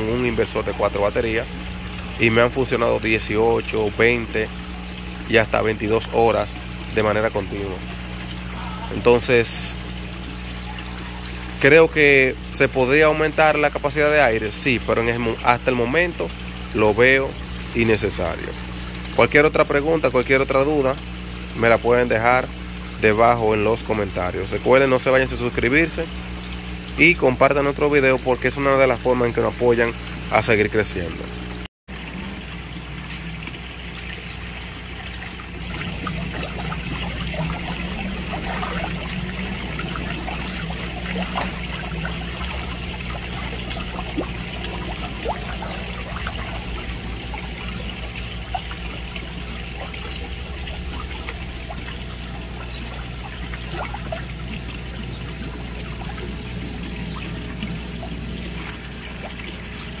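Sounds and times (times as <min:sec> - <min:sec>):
low machine hum: 0:00.0 - 1:00.0
water trickling and splashing: 0:00.0 - 1:00.0.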